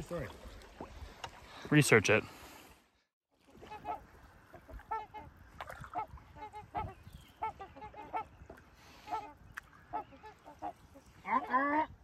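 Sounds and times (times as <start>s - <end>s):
geese honking: 6.0s - 8.3s.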